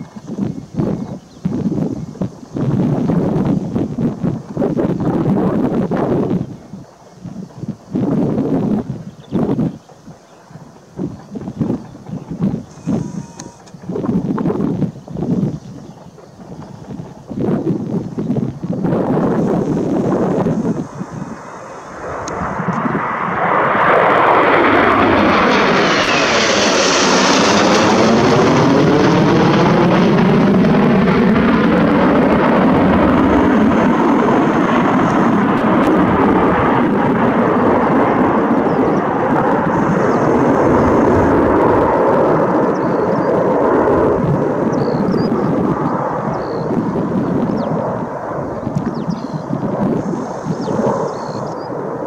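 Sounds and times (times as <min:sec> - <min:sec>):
jets flying past: 0:15.7 - 0:52.0.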